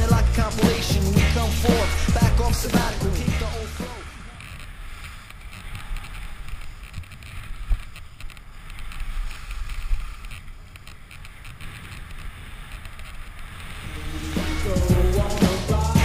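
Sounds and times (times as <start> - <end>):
skis scraping over snow: 0.0 - 16.0.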